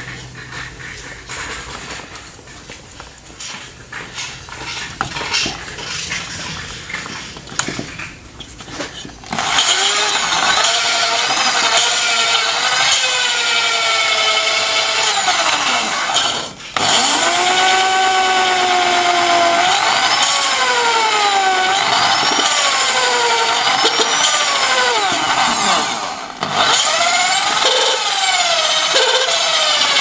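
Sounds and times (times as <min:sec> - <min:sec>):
gritty grinding: 0:00.0 - 0:30.0
power drill motor whine: 0:09.3 - 0:30.0.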